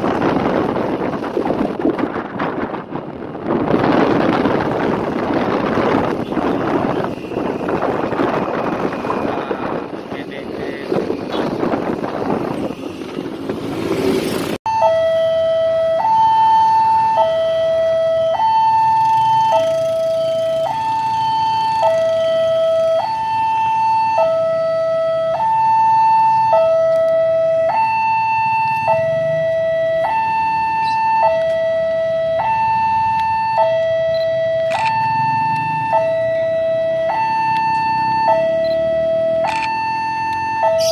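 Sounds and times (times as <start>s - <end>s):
wind buffeting microphone: 0.0s - 14.6s
two-tone level crossing alarm: 14.7s - 40.9s.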